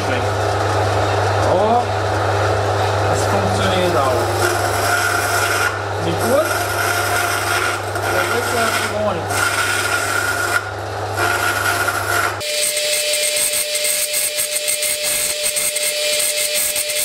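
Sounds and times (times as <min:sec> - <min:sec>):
band saw motor humming: 0:00.0 - 0:17.0
saw blade rasping through wood: 0:03.8 - 0:17.0.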